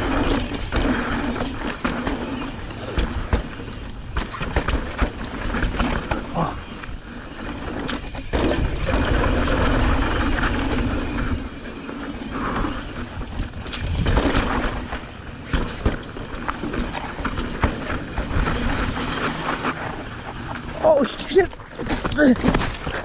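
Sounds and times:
bike rattling and clattering: 0.0 - 23.0
wind rumble on microphone: 4.2 - 20.5.

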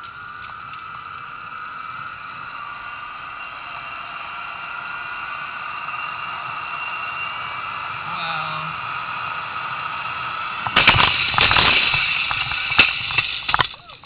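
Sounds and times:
zip line trolley whirring on cable: 0.0 - 14.0.

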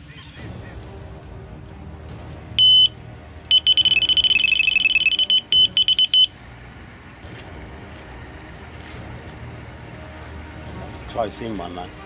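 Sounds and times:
electronic bite alarm bleeps: 2.6 - 6.3.

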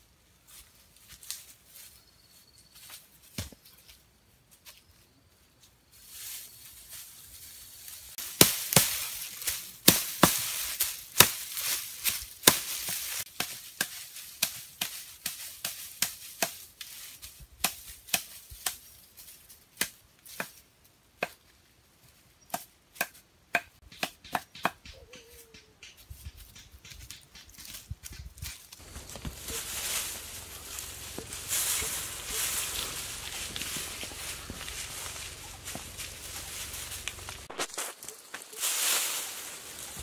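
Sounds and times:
dry thatch rustling: 5.6 - 20.4, 26.2 - 40.0
twigs snapping: 26.6 - 40.0.

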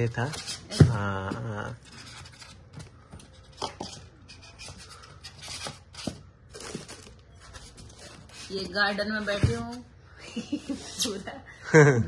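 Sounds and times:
foam and plastic rustling: 4.6 - 9.8.

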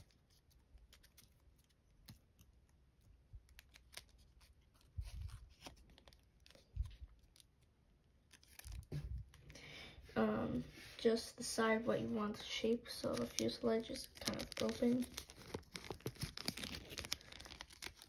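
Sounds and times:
foil paper crinkling: 3.4 - 9.5, 12.4 - 18.0.

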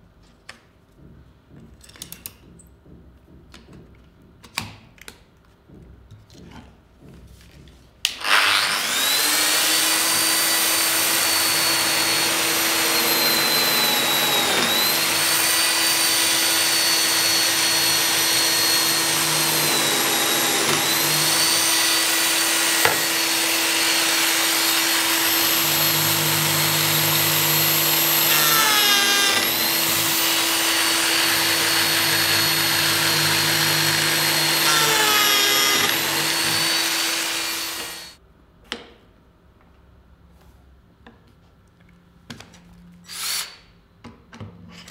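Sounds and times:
biscuit joiner whining: 8.0 - 38.2.

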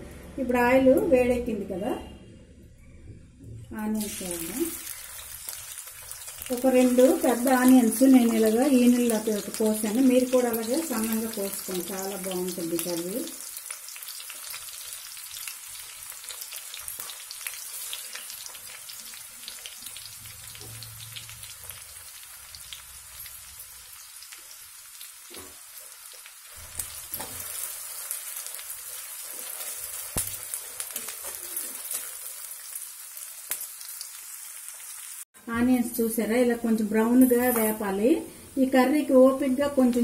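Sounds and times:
onions sizzling in hot oil: 3.9 - 35.3.

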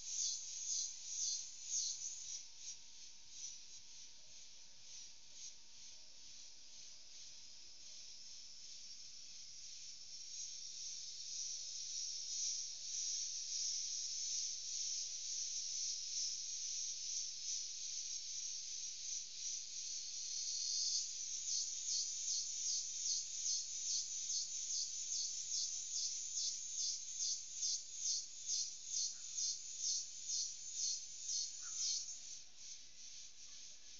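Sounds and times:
insects buzzing shrilly: 18.8 - 33.9.

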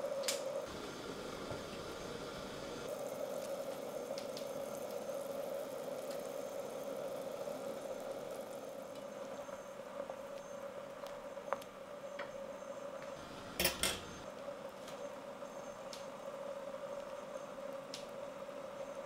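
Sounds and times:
pot simmering and bubbling: 0.6 - 14.5.

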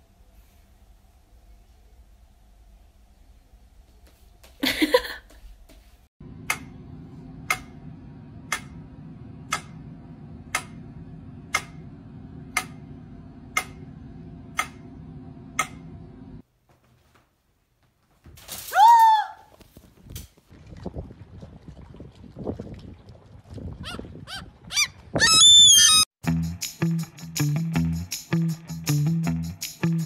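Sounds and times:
low hum: 6.2 - 16.4
clock ticking: 8.5 - 8.8, 9.5 - 9.8, 10.5 - 10.9, 11.5 - 11.9, 12.5 - 12.9, 13.5 - 13.9.

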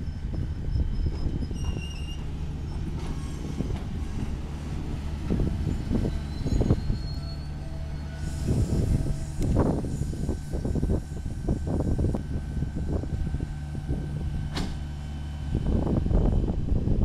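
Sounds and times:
wheel squeals: 0.0 - 10.3
train wheels rumbling on rail: 0.0 - 17.0
train clanks: 0.3 - 10.9, 14.4 - 14.9.

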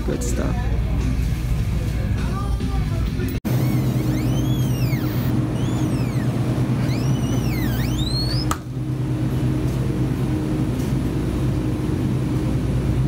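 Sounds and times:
high-pitched squeaks: 3.5 - 8.5
refrigerator cases humming: 3.5 - 13.0.

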